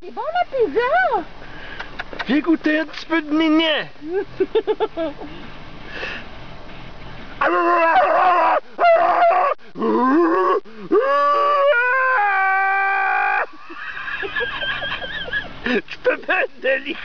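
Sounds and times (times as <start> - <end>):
person imitating moose calls: 8.8 - 11.8.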